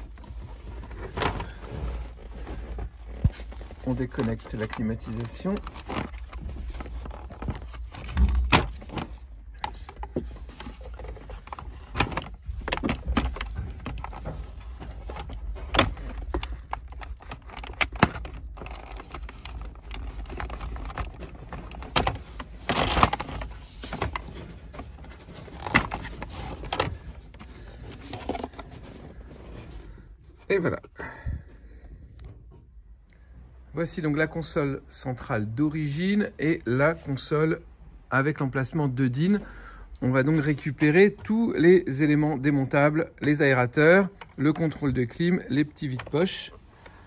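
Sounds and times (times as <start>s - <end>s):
plastic trim scraping: 0.0s - 29.3s
plastic connectors clicking and rattling: 3.6s - 28.7s.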